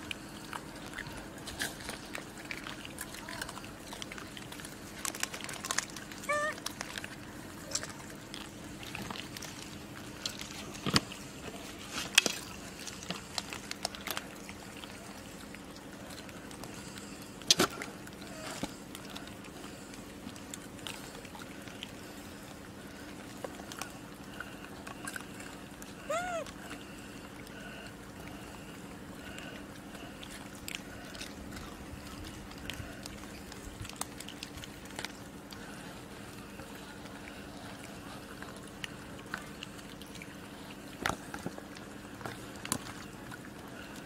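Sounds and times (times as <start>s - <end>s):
background wash: 0.0s - 44.0s
monkey squeaky calls: 6.3s - 6.6s, 26.1s - 26.5s.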